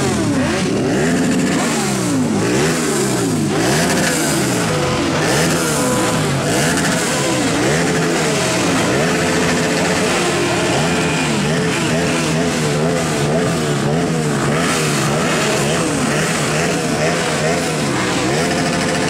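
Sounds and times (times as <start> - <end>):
motorcycle engines revving: 0.0 - 19.0.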